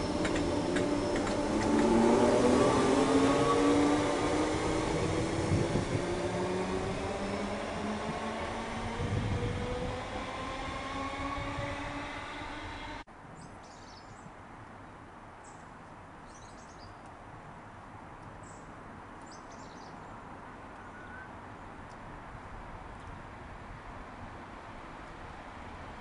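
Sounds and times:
electric train motors whining: 0:00.0 - 0:13.0
distant train rumble: 0:00.0 - 0:13.1.

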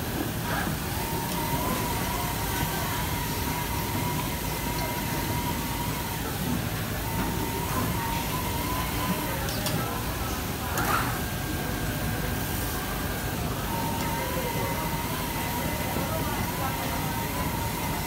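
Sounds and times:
thin high machine whine: 0:00.0 - 0:18.0
cutting machine drone: 0:12.8 - 0:18.0.

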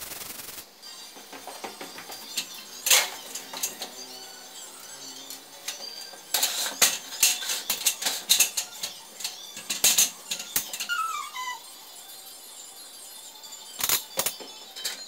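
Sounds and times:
metal stepladder clattering: 0:01.2 - 0:04.2, 0:05.2 - 0:11.0
short falling squeak: 0:10.4 - 0:11.8.

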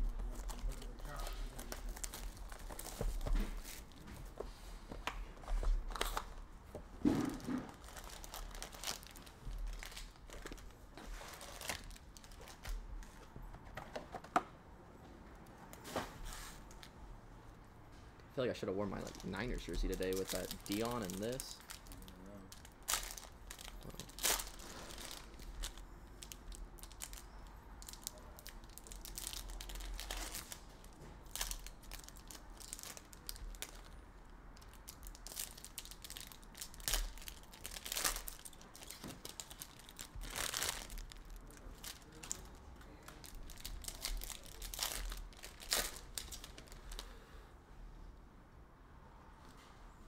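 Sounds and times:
foil wrappers crinkling and tearing: 0:00.1 - 0:04.0, 0:07.3 - 0:12.8, 0:18.5 - 0:34.0, 0:34.6 - 0:47.1.

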